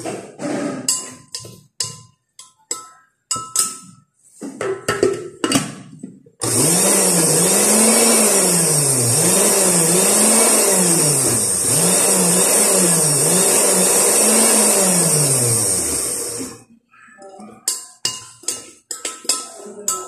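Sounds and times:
blender motor running: 6.4s - 16.6s.

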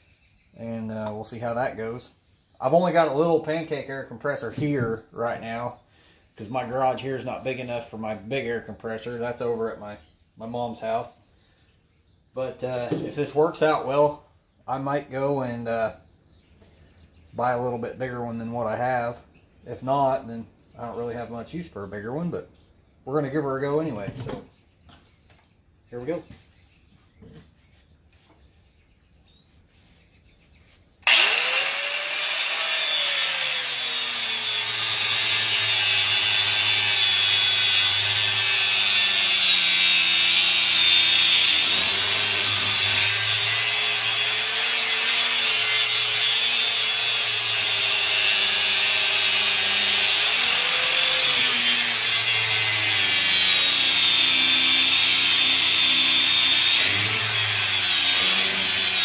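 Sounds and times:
angle grinder cutting metal: 31.0s - 59.0s.

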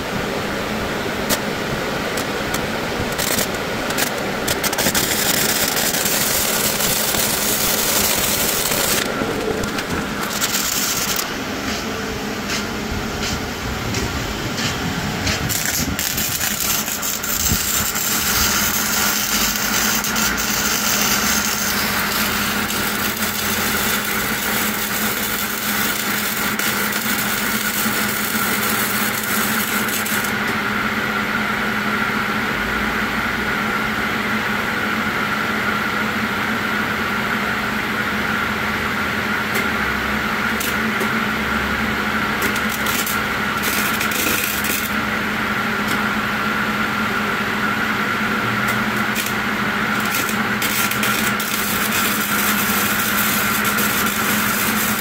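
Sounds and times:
steady hum: 0.0s - 55.0s
welding arc crackling: 1.0s - 30.6s, 40.4s - 46.7s, 48.3s - 55.0s.

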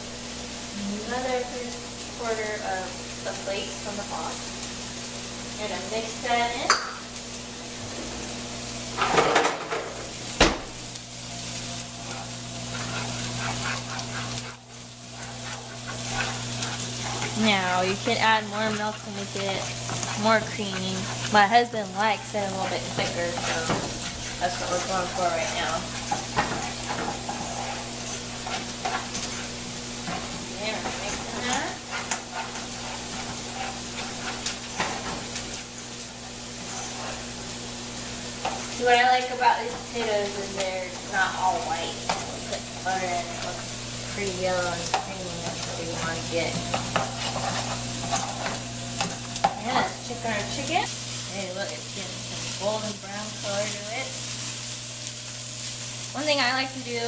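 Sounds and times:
chicken sizzling in a frying pan: 0.0s - 57.0s
spatula stirring in a saucepan: 11.4s - 54.3s.

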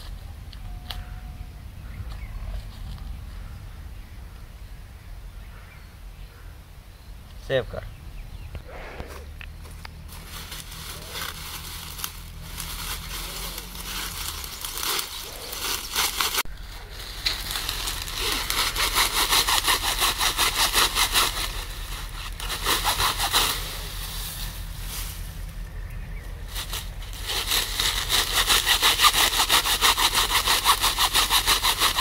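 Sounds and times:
dry grass rustling and crackling: 8.8s - 32.0s.

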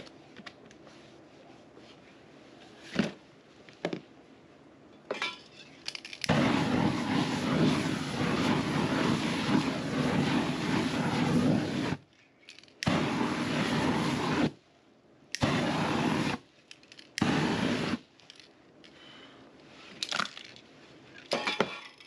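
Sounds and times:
aerosol flame roaring: 6.2s - 12.1s, 12.7s - 18.1s.

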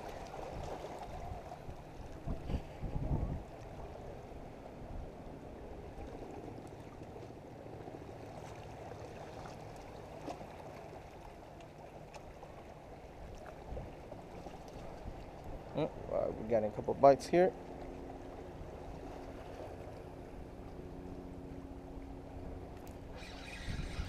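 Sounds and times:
water at the edge: 0.0s - 24.0s.

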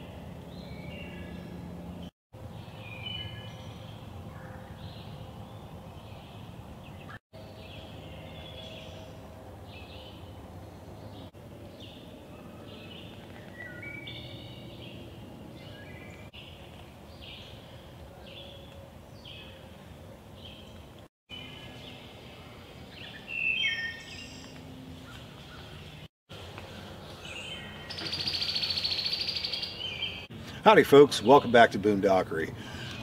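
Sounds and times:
birds chirping: 20.4s - 33.0s.

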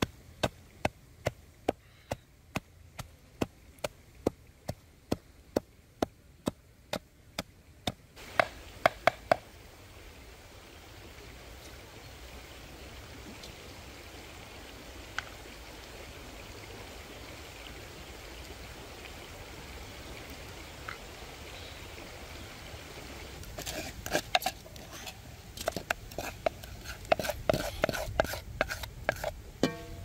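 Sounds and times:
steady background hiss: 0.0s - 30.0s
wooden utensil knocking metal basin: 29.6s - 30.0s.

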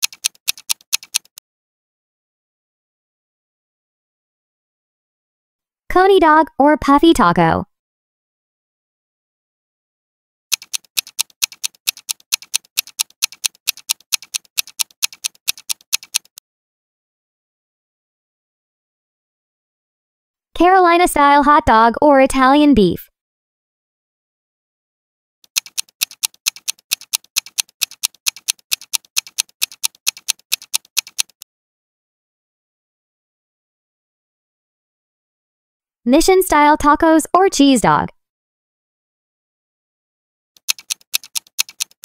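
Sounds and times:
clock ticking: 0.0s - 1.4s, 10.5s - 16.4s, 25.5s - 31.4s, 40.6s - 42.0s.

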